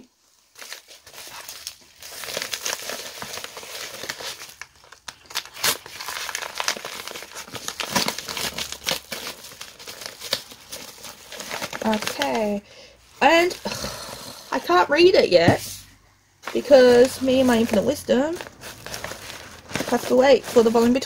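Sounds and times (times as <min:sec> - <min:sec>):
packaging torn and crumpled: 0:00.5 - 0:12.5, 0:18.3 - 0:21.0.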